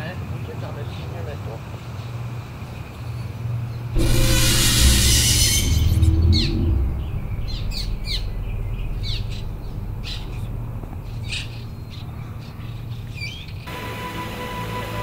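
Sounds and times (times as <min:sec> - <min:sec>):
birds chirping: 0:00.2 - 0:13.7
low rumble: 0:04.0 - 0:13.6.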